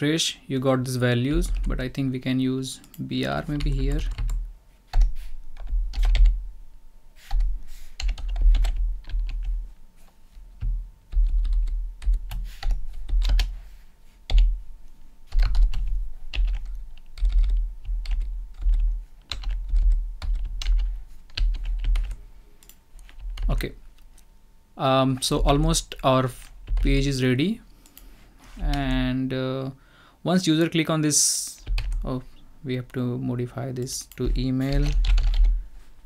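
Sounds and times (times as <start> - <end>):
keyboard typing: 2.9 - 6.4, 7.3 - 9.6, 10.6 - 13.6, 15.3 - 23.6, 33.8 - 35.6.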